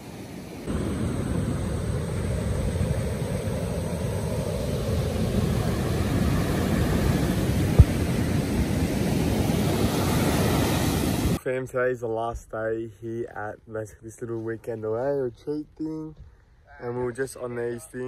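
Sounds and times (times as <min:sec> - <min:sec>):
breaking surf: 0:00.0 - 0:11.4
wind buffeting microphone: 0:00.7 - 0:11.4.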